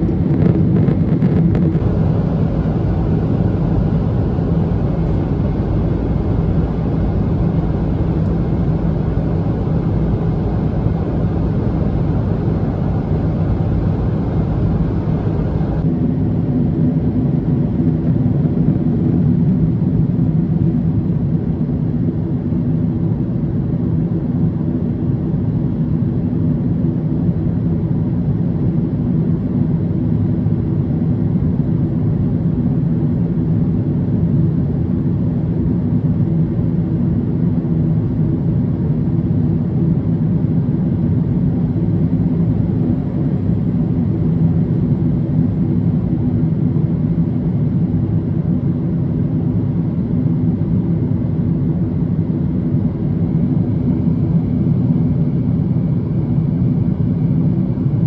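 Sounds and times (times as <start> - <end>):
airplane cabin drone: 0.0 - 58.0.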